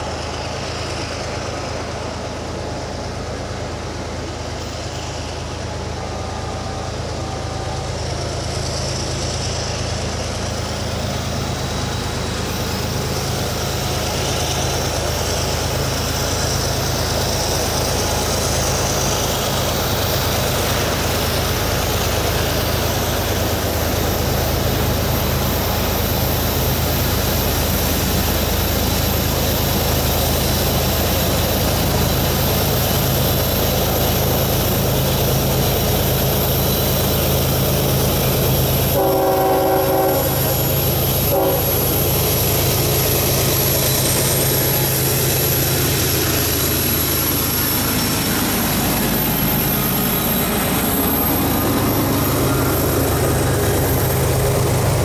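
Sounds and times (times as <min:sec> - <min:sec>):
locomotive engines droning: 0:00.0 - 0:55.0.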